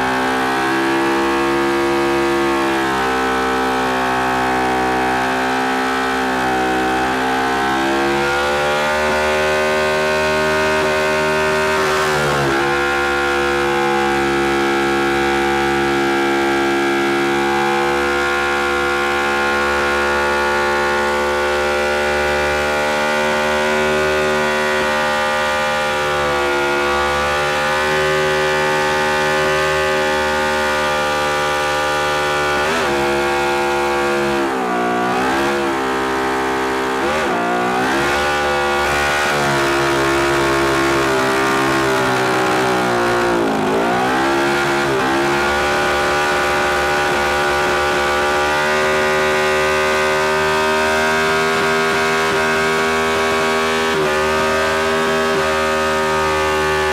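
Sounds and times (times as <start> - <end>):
motorcycle engine revving high: 0.0 - 56.9.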